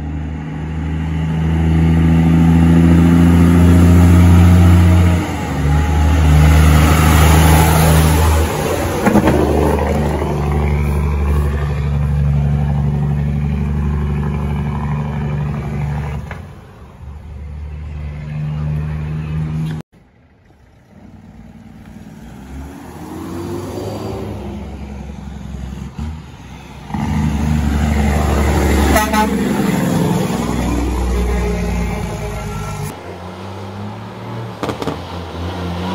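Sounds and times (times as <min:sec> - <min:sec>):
diesel truck engines under load: 0:00.0 - 0:35.9
truck horn toot: 0:28.7 - 0:29.8.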